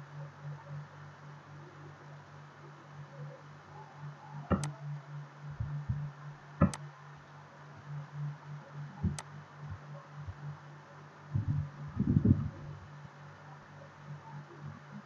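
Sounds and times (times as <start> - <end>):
low hum: 0.0 - 15.0
computer mouse clicks: 4.5 - 4.8, 9.0 - 9.3
soft low knocks: 11.3 - 12.6.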